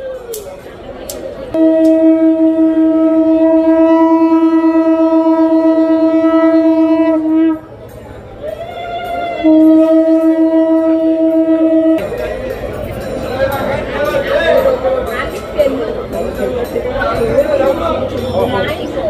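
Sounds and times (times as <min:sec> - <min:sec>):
conch shell blasts: 0:01.6 - 0:07.7, 0:09.4 - 0:12.2.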